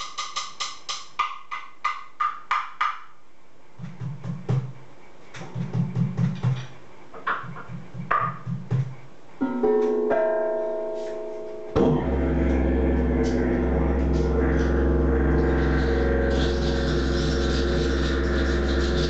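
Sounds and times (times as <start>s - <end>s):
ringing chord: 9.4s - 18.4s
hand drum strokes: 10.9s - 19.0s
didgeridoo drone: 11.8s - 19.0s.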